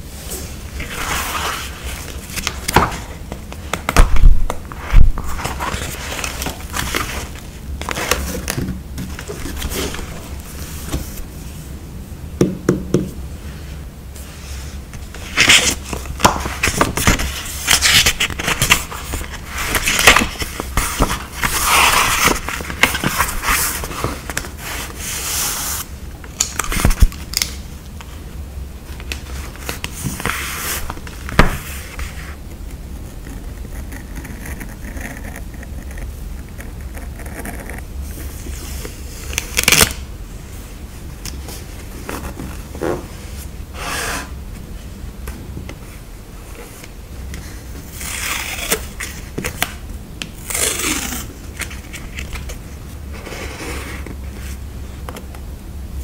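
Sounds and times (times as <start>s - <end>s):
paper crinkling: 15.2s - 25.1s.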